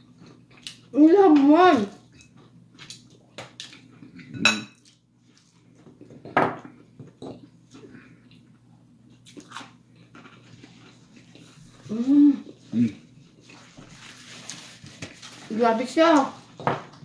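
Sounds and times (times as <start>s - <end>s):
tableware clatter: 4.4s - 4.8s.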